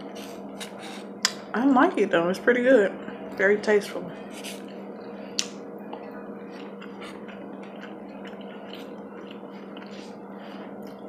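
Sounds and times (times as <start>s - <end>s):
steady low hum: 0.0s - 11.0s
person chewing food: 4.3s - 11.0s
wet mouth clicks: 5.4s - 10.2s.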